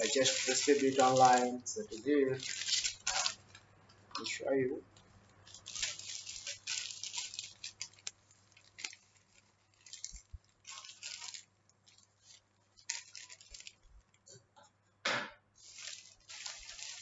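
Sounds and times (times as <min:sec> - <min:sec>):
scissors cutting plastic: 0:00.0 - 0:03.5
plastic mailer bag crinkling: 0:00.0 - 0:03.6, 0:04.2 - 0:14.2, 0:15.6 - 0:17.0.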